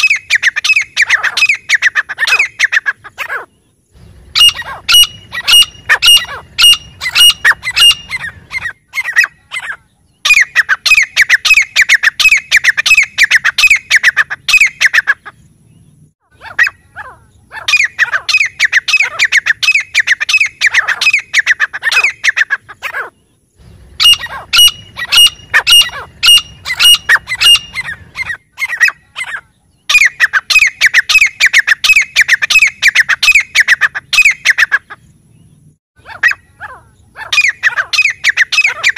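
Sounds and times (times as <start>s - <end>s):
francolins calling: 0.0s - 38.9s.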